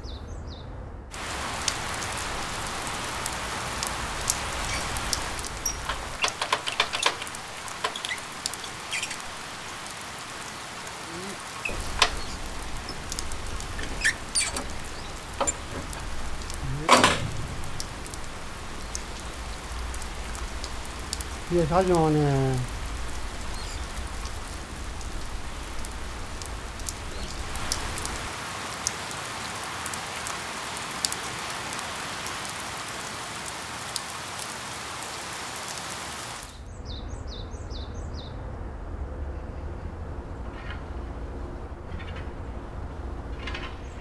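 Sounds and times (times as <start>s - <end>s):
water drips and ticks: 1.1s - 36.6s, 40.4s - 44.0s
steady rain falling: 1.1s - 44.0s.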